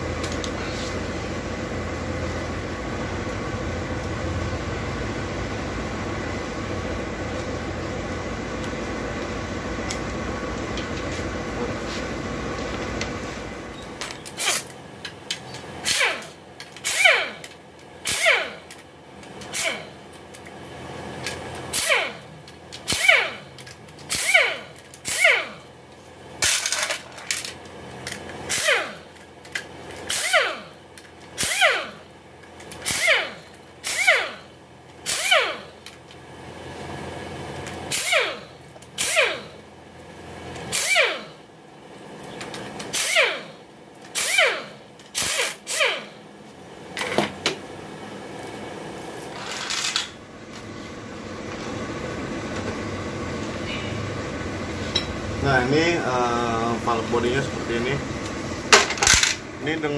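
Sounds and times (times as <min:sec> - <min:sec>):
cordless driver bursts: 0:15.8 - 0:18.7, 0:21.7 - 0:23.5, 0:24.1 - 0:25.6, 0:28.5 - 0:29.1, 0:30.1 - 0:30.7, 0:31.4 - 0:32.0, 0:32.8 - 0:35.7, 0:37.9 - 0:39.6, 0:40.7 - 0:41.4, 0:42.9 - 0:46.2
steady hum and hiss: 0:46.2 - 0:59.9.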